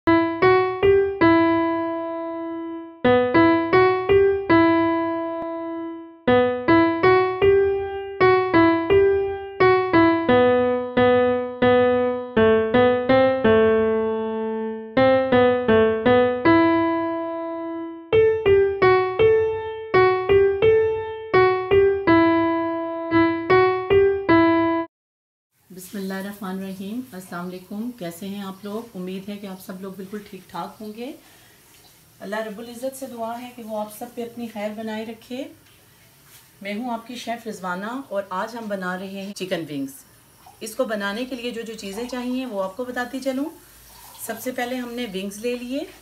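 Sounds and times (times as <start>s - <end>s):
solo piano music: 0.0s - 24.9s.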